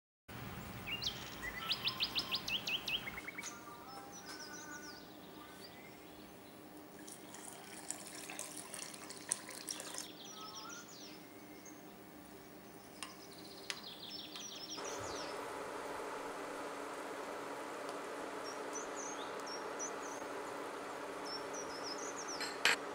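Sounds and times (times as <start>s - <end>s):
birds chirping: 0.4s - 22.9s
water pouring into glass bowl: 6.9s - 10.1s.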